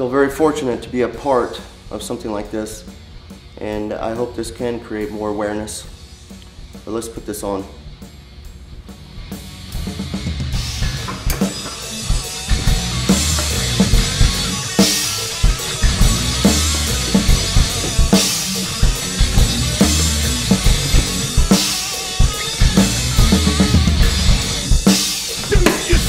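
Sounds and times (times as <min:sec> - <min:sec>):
music with drum-kit beat: 0:05.8 - 0:06.9, 0:07.8 - 0:26.0.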